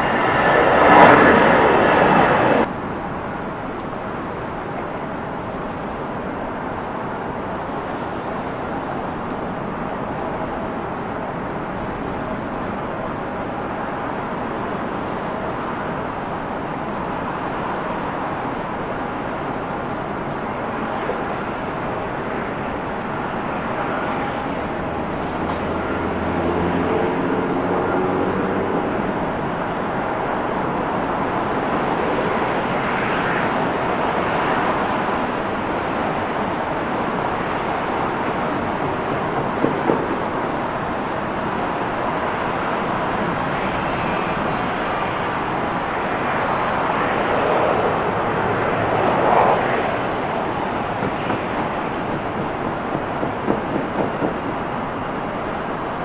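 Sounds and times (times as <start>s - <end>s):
jet engines running: 0.0s - 56.0s
faint high whine: 42.2s - 50.9s.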